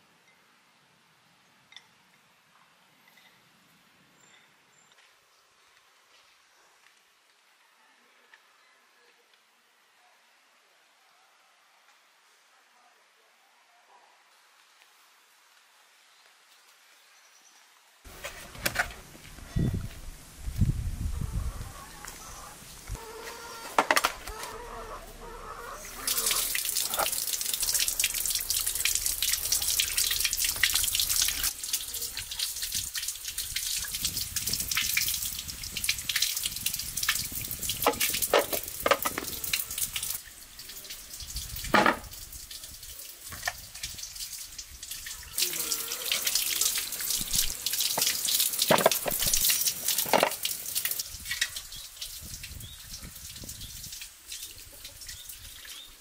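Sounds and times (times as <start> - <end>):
water running from tap: 25.7 - 55.8.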